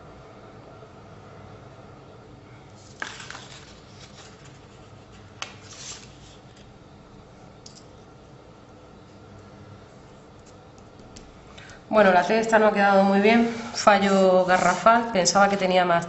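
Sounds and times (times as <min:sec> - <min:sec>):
papery rustle: 0:02.8 - 0:06.7.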